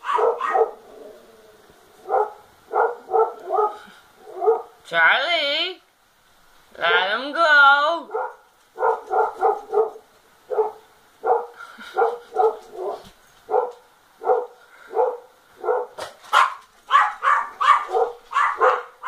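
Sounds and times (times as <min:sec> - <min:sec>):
dog barking: 0:00.0 - 0:00.8, 0:02.0 - 0:04.8, 0:08.1 - 0:19.0.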